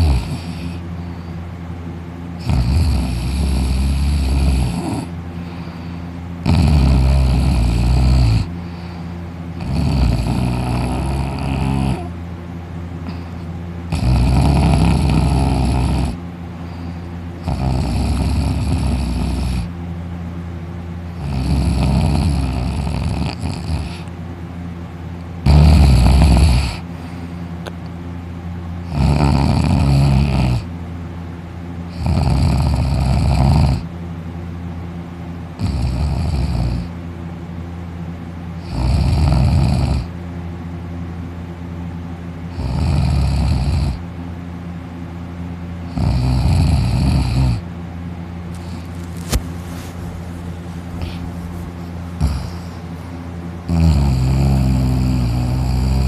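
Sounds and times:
man snoring loudly: 0.0s - 0.8s, 2.4s - 5.8s, 6.4s - 8.9s, 9.5s - 12.2s, 13.9s - 16.2s, 17.4s - 19.8s, 21.1s - 24.1s, 25.4s - 26.9s, 28.8s - 30.7s, 31.9s - 33.9s, 35.6s - 36.9s, 38.6s - 40.1s, 42.5s - 44.0s, 45.9s - 47.7s, 48.5s - 49.4s, 50.2s - 53.0s, 53.6s - 56.0s
steady low hum: 0.0s - 56.0s.

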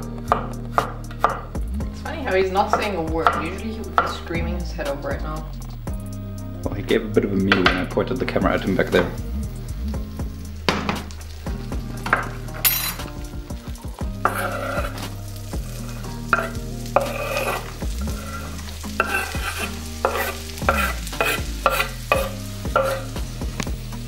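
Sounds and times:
butter sizzling in a pan: 0.0s - 24.0s
scraping and stirring in pan: 10.6s - 24.0s
scraping off a wooden cutting board: 14.2s - 15.1s, 16.4s - 17.7s, 19.0s - 23.0s.

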